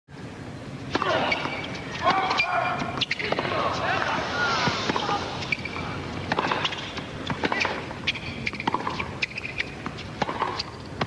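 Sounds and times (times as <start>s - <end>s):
shoes squeaking: 1.0s - 11.0s
tennis ball knocks: 8.5s - 10.8s.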